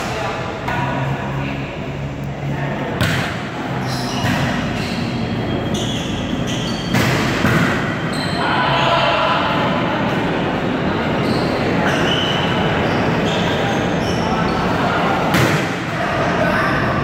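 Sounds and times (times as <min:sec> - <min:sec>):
volleyball being hit: 0:03.0 - 0:03.5
players calling out: 0:08.0 - 0:17.0.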